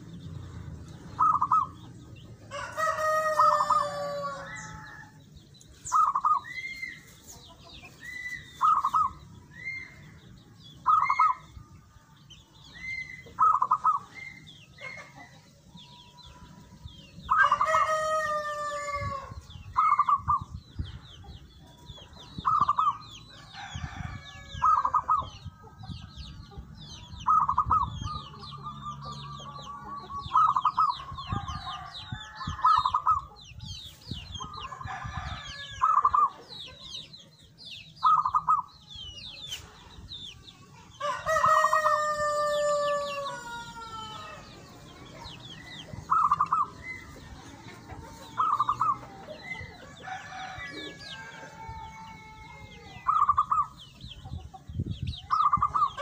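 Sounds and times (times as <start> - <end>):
rooster crowing: 2.5 - 5.2, 17.3 - 19.4, 41.0 - 44.6, 48.3 - 53.3.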